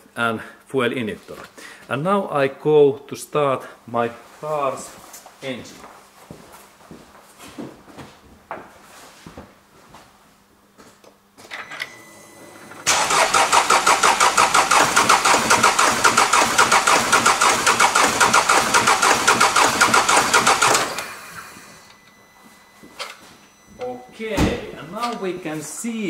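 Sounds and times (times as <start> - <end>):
diesel engine cranking on starter: 12.8 - 21.5.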